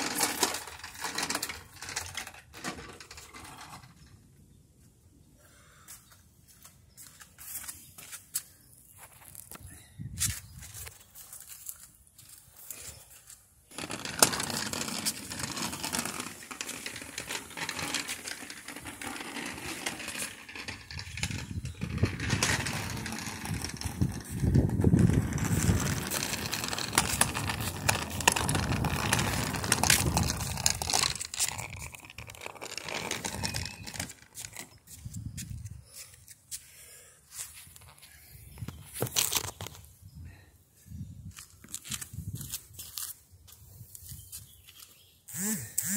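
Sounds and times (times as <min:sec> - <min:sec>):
handling rustling and rubbing: 0:13.7 - 0:36.3.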